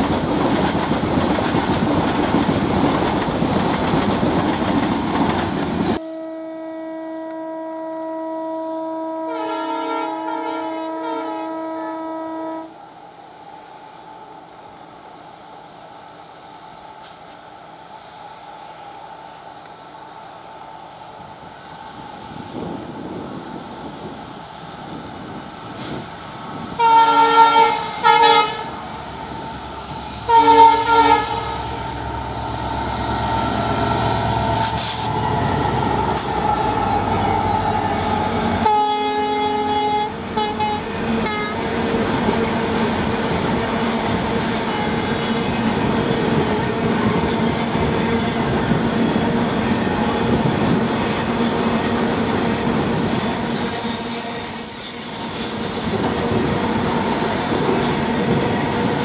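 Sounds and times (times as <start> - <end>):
train horn blasts: 6.0 - 12.8, 26.8 - 28.8, 30.2 - 41.7, 53.5 - 55.6
diesel locomotive rumble: 22.5 - 59.0.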